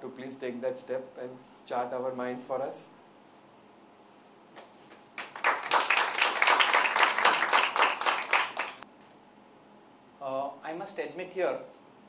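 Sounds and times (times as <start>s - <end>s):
audience applause: 5.2s - 8.8s.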